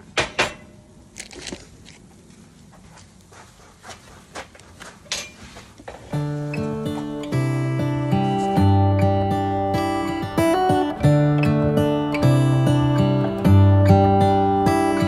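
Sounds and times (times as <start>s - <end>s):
acoustic guitar music: 6.1s - 15.0s.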